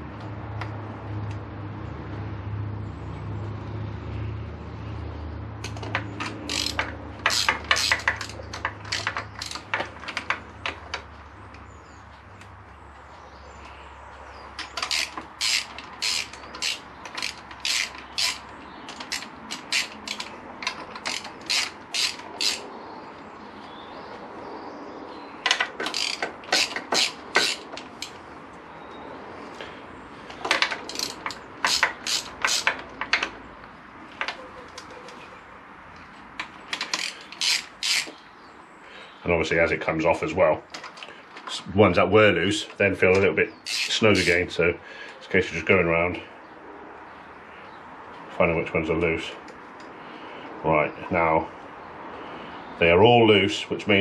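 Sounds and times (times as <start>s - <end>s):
hand ratchet clicking: 5.6s - 11.0s, 14.6s - 22.7s, 25.5s - 28.2s, 30.5s - 33.3s, 36.4s - 38.2s, 43.6s - 44.4s.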